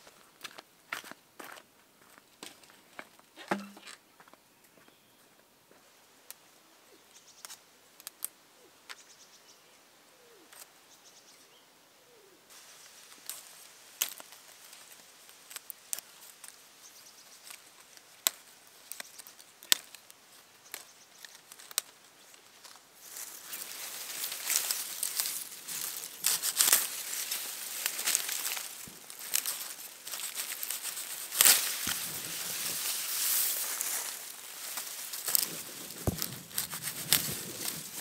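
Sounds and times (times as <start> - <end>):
leaves and stems snapping: 7.4 - 8.3, 13.2 - 16.6, 17.4 - 22.0, 22.6 - 38.0
leaves rustling: 12.5 - 38.0.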